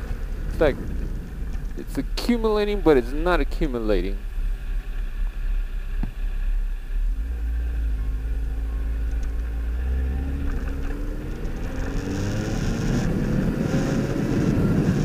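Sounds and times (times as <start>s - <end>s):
wind noise on microphone: 0.0s - 7.9s, 9.1s - 15.0s
motorcycle engine accelerating: 7.0s - 15.0s.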